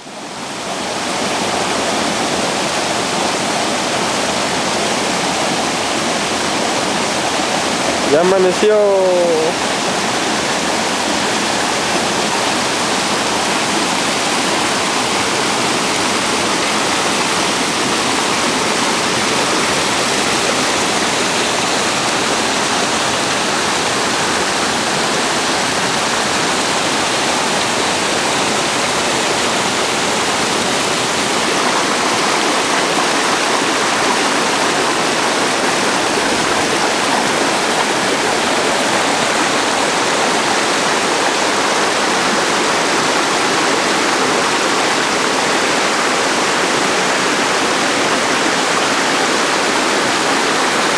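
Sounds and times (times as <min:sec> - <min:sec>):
stream rushing over boulders: 0:00.0 - 0:50.9.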